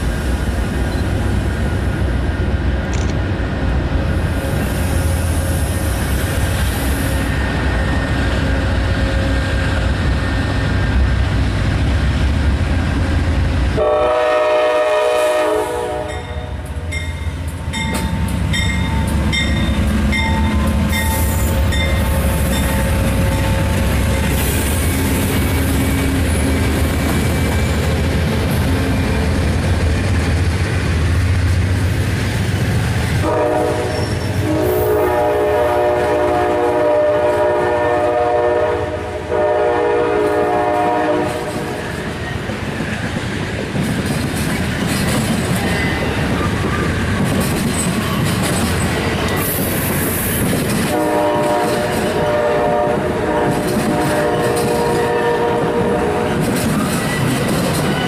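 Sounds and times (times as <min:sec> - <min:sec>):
train cars clacking over rails: 0:04.0 - 0:38.4, 0:39.3 - 0:58.0
train horn blasts: 0:13.7 - 0:17.0, 0:33.2 - 0:41.8, 0:50.9 - 0:56.5
locomotive bell ringing: 0:16.1 - 0:23.6.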